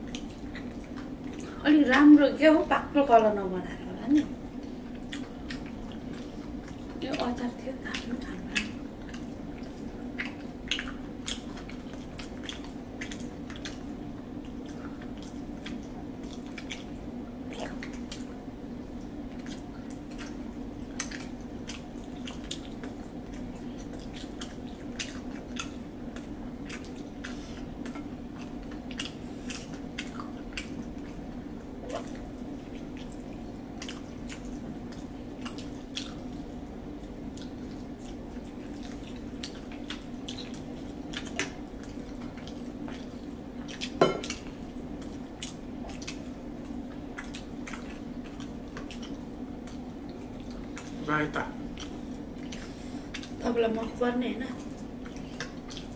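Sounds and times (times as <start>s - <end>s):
people chewing food: 0.0s - 55.9s
small clicks and smacks: 19.0s - 31.2s, 54.6s - 55.9s.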